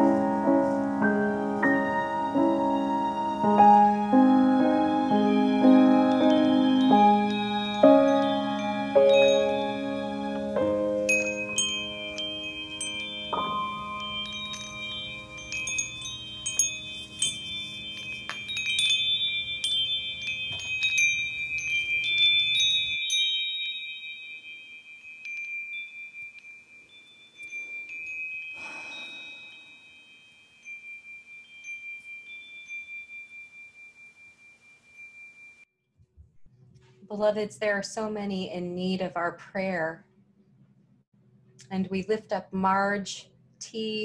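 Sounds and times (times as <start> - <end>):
low sustained tone: 0.0 - 23.1
chimes ringing: 5.2 - 35.7.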